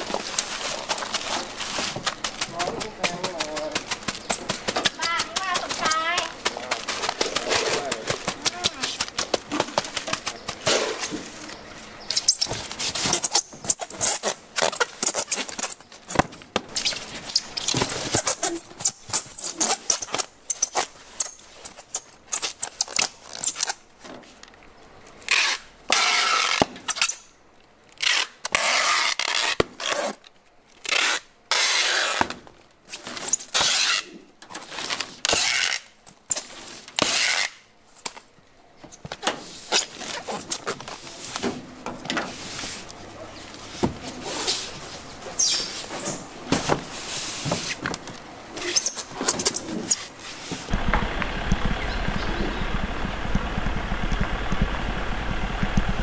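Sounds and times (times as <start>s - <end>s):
packing tape pulled from dispenser: 12.1s - 15.8s, 16.8s - 23.8s, 25.2s - 27.3s, 28.0s - 38.1s.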